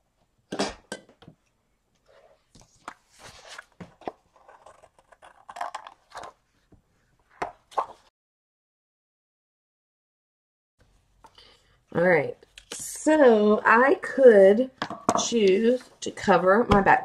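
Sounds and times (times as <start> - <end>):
paper rustling: 2.5 - 6.4.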